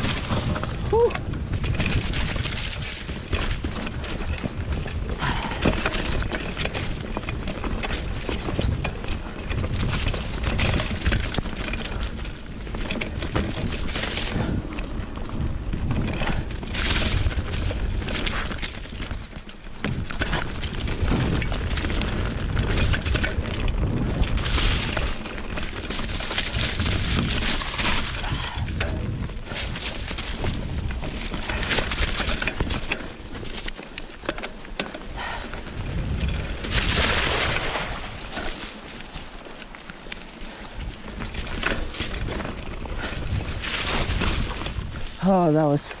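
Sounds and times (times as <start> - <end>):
wind on microphone: 0.0 - 19.2, 19.8 - 33.4, 35.1 - 39.4, 40.5 - 46.0
bike rattling and knocking: 0.0 - 46.0
tyres crunching over leaves: 19.8 - 46.0.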